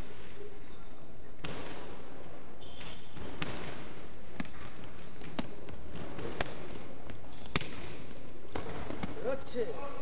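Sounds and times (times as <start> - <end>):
gloved punches: 2.8 - 9.2
footwork on boxing ring: 2.8 - 9.4.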